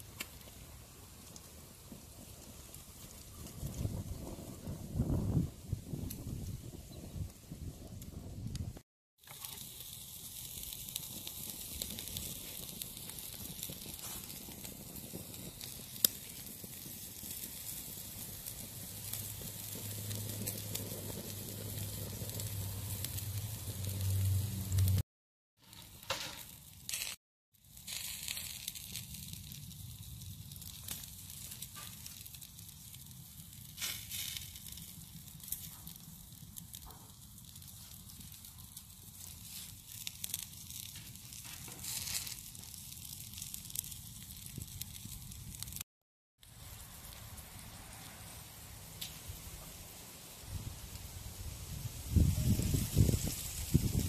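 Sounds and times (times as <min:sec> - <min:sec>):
fire crackling: 0:00.0 - 0:25.0, 0:25.6 - 0:54.0
meat sizzling over a fire: 0:00.0 - 0:54.0
low rumble: 0:21.7 - 0:25.0.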